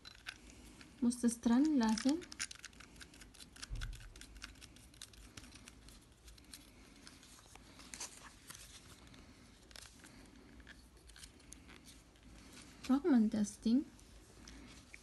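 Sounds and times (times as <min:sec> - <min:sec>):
plastic clicks and scrapes: 0:00.0 - 0:07.4.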